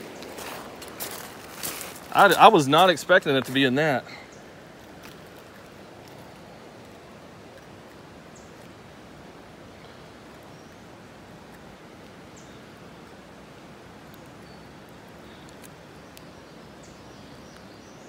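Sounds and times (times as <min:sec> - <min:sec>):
flowing river water: 0:00.0 - 0:17.5
faint bird chirps: 0:14.0 - 0:18.0.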